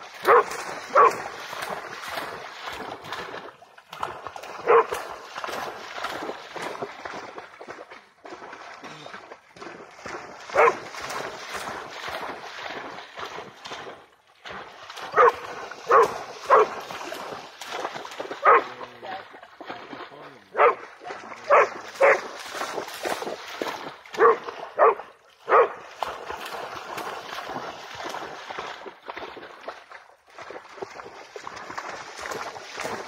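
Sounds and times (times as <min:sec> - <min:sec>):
dog splashing through water: 0:00.0 - 0:33.0
dog yipping barks: 0:00.3 - 0:01.2, 0:15.2 - 0:16.7, 0:24.2 - 0:25.7.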